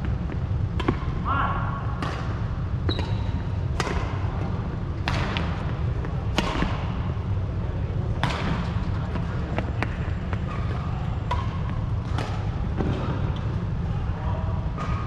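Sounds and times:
steady low hum: 0.0 - 15.0
racket striking shuttlecock: 0.8 - 1.1, 2.0 - 4.3, 5.0 - 7.0, 9.8 - 13.1.

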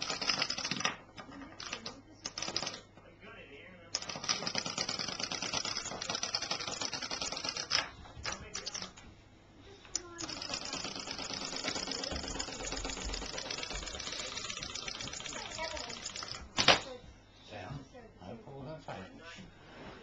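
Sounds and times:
clockwork toy clattering clicks: 0.0 - 2.8, 4.0 - 9.0, 10.2 - 16.8.

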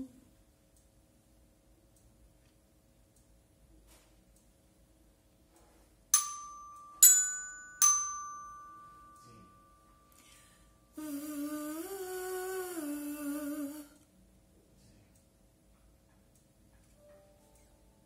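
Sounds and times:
metal chime struck with mallet: 6.2 - 10.1
woman humming one note: 11.0 - 14.0.

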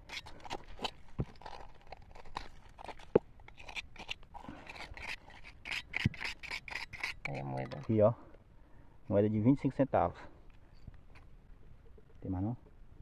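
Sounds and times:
gravel crunching being dug: 0.0 - 8.1.

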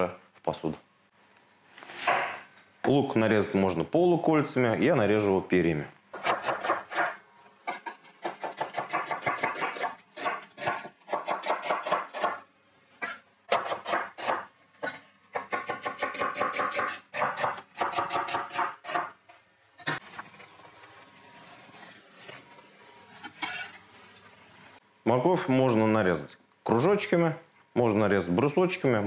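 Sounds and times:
knife slicing onion on board: 6.1 - 12.4, 13.0 - 19.2.

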